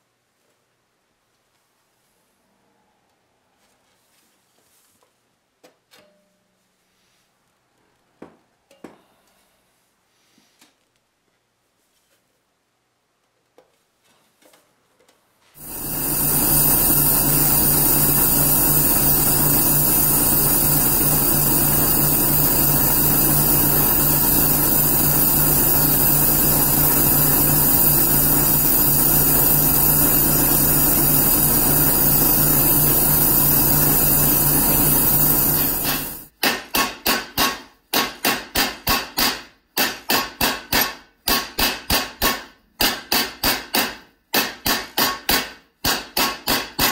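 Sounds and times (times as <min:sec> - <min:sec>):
torch flame hissing: 0:15.6 - 0:36.3
mallet striking copper sheet: 0:36.4 - 0:46.9.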